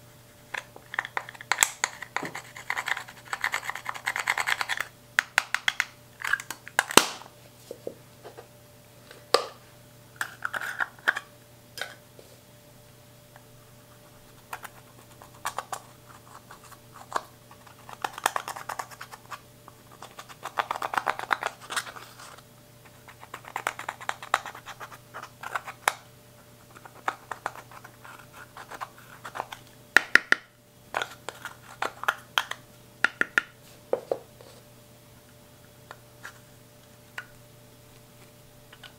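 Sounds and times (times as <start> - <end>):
gritty scratching of eyeshadow: 1.0 - 4.9, 14.3 - 25.8, 26.7 - 29.6.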